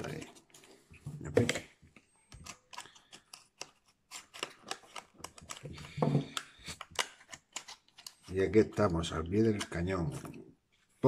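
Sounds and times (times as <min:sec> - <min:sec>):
plastic packaging clicks and crinkles: 0:02.3 - 0:08.4.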